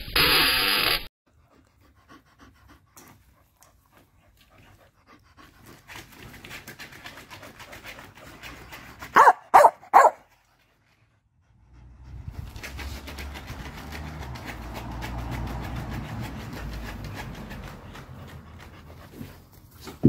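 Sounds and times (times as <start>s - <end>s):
dog panting: 1.3s - 20.0s
dog barking: 9.2s - 10.3s.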